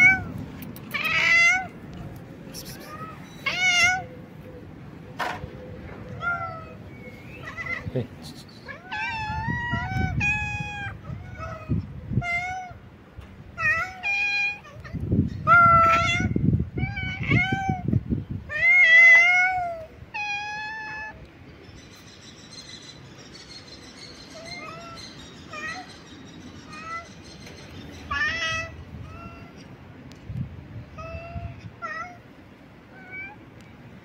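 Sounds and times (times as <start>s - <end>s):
cats meowing: 0.0s - 4.4s, 6.1s - 12.8s, 13.5s - 21.3s, 24.3s - 29.8s, 30.9s - 33.5s.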